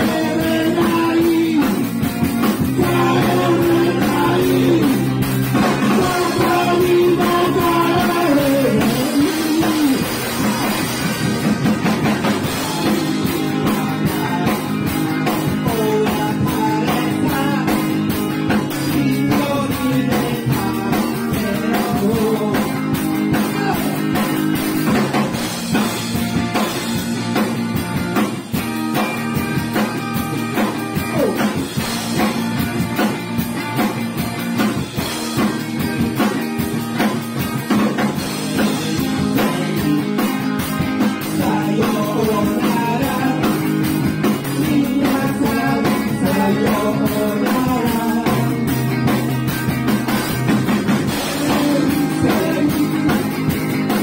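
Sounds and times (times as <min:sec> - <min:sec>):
man singing: 0:00.0 - 0:11.2, 0:12.3 - 0:24.4, 0:31.0 - 0:31.8, 0:38.3 - 0:49.1, 0:51.0 - 0:54.0
rock band playing live: 0:00.0 - 0:54.0.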